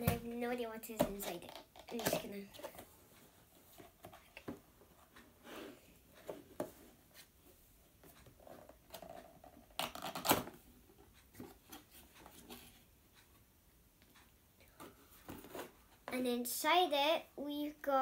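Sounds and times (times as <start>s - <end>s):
cardboard rustling: 14.8s - 15.9s.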